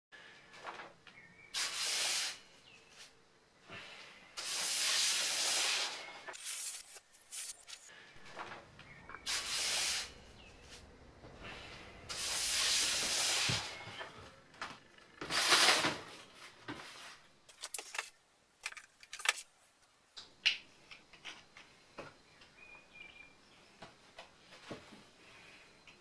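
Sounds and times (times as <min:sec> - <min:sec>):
long airy hisses: 0:01.5 - 0:02.6, 0:03.6 - 0:06.8, 0:09.2 - 0:10.5, 0:11.4 - 0:14.0.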